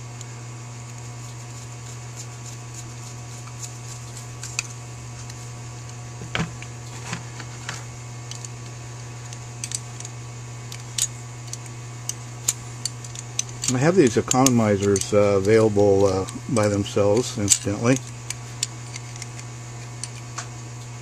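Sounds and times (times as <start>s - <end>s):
screwdriver clicks and taps: 12.8s - 17.6s.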